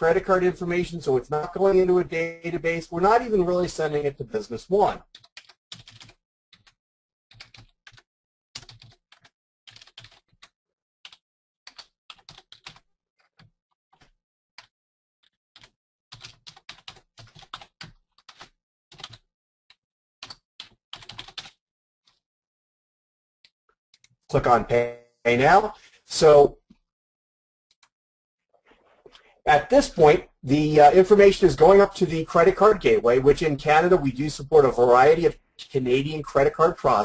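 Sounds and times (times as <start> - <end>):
typing on computer keyboard: 5.0 - 19.2, 20.2 - 22.2.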